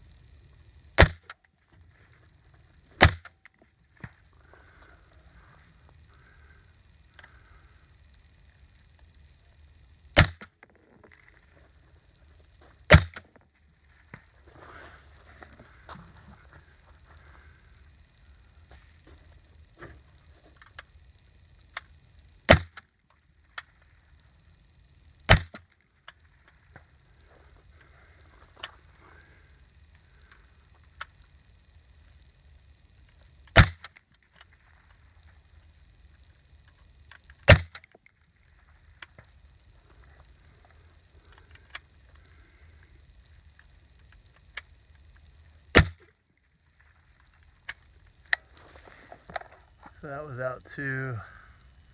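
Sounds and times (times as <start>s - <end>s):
rifle shots: 1.0s - 1.3s, 3.0s - 3.3s, 10.2s - 10.5s, 12.9s - 13.2s, 22.5s - 22.8s, 25.3s - 25.6s, 33.5s - 33.9s, 37.5s - 37.8s, 45.7s - 46.0s.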